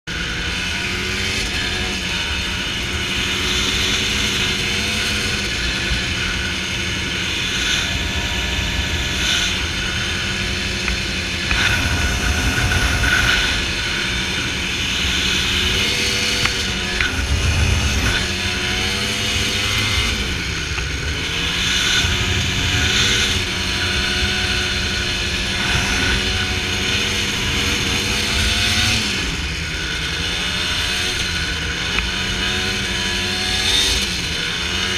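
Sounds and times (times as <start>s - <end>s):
dirt bike engine running: 0.1s - 34.9s
wind buffeting microphone: 5.8s - 29.5s.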